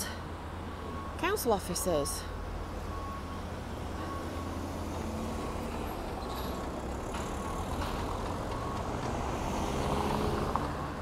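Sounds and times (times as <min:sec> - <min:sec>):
low traffic rumble: 0:00.0 - 0:11.0
cars driving slowly past: 0:02.2 - 0:11.0.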